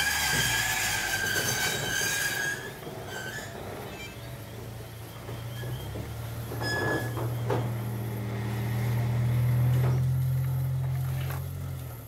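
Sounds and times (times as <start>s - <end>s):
tyre and drive noise: 0.0s - 12.0s
electric motor humming: 7.4s - 11.4s.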